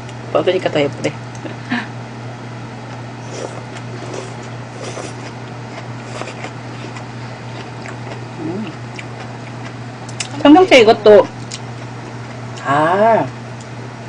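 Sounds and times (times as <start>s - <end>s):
steady low hum: 0.0s - 14.0s
person chewing food: 3.2s - 10.3s, 11.4s - 12.5s.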